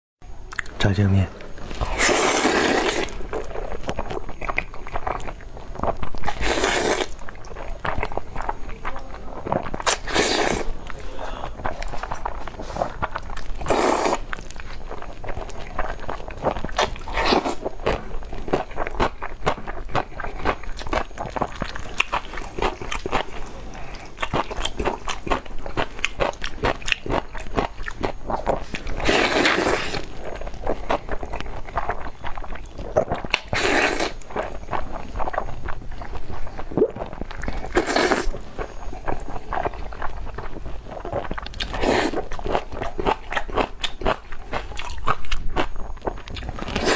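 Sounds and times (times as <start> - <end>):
wet chewing and mouth clicks: 0.4 - 0.8, 1.4 - 46.9
slurping noodles: 1.7 - 3.8, 5.8 - 7.2, 9.6 - 10.8, 11.6 - 16.0, 16.7 - 18.7, 28.3 - 32.0, 32.9 - 34.5, 36.7 - 38.4, 40.9 - 42.9.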